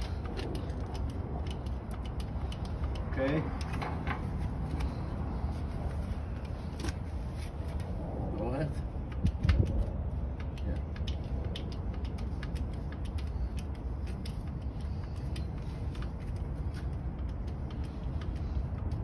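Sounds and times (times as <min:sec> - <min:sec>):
grease gun clicks and creaks: 0:00.0 - 0:05.0
steady low rumble: 0:00.0 - 0:19.0.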